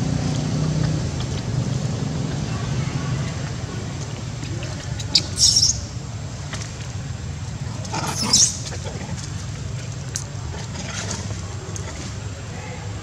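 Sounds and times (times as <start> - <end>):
monkey squealing: 5.2 - 5.8, 8.0 - 8.6.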